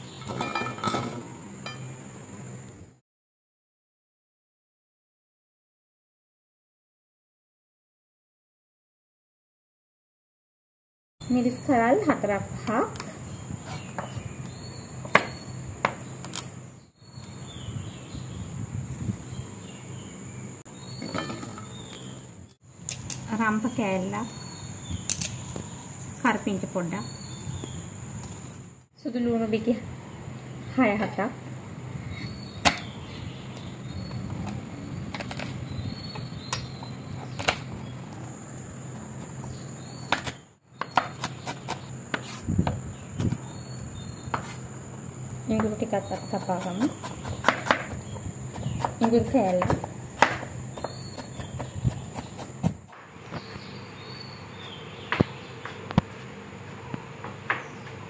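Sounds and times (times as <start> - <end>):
knife chopping on wooden board: 45.6 - 53.5.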